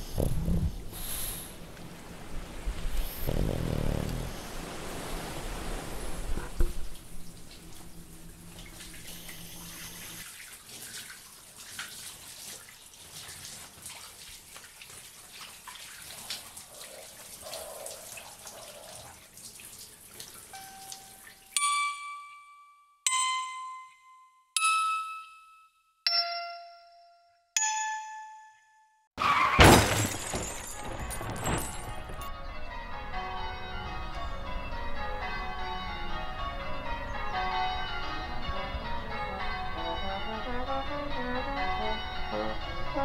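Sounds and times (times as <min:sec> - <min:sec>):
running water: 0:00.8 - 0:21.6
loud crash: 0:29.2 - 0:32.2.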